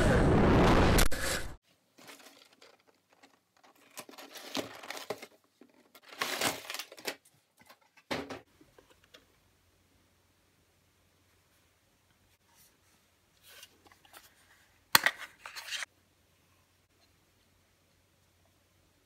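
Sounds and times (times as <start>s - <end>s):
cardboard rustling and scraping: 1.8s - 8.1s.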